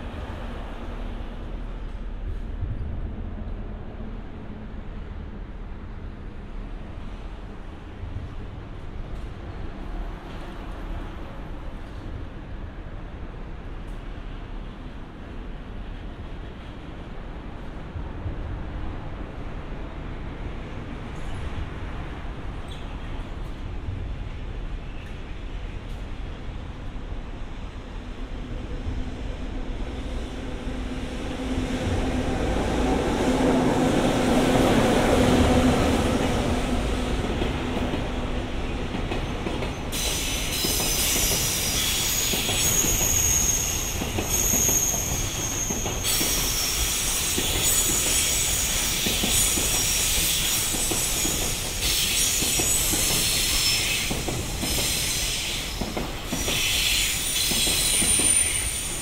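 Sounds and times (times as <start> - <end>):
wheels squealing on rails: 38.7 - 59.0.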